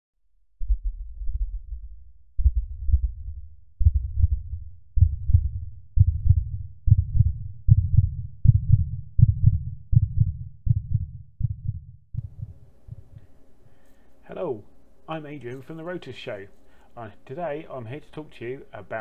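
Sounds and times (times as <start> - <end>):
deep low thuds: 0.5 - 13.2.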